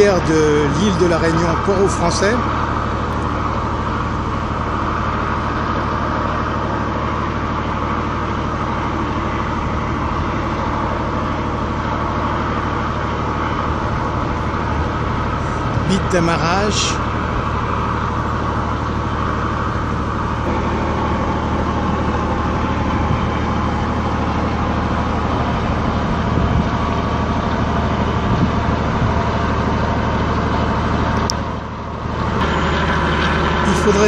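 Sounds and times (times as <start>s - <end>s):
even wash of noise: 0.0s - 31.2s
low machinery hum: 0.0s - 34.0s.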